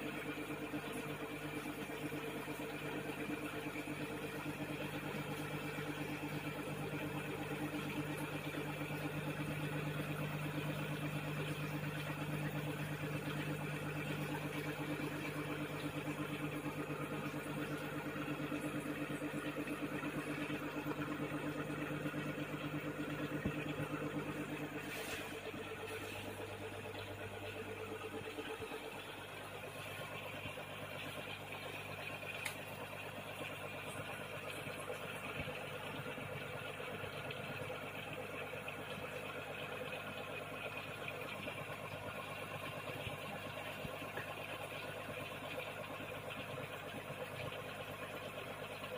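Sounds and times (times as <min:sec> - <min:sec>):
air pump humming: 0:00.0 - 0:48.8
air bubbling through water: 0:09.2 - 0:33.2.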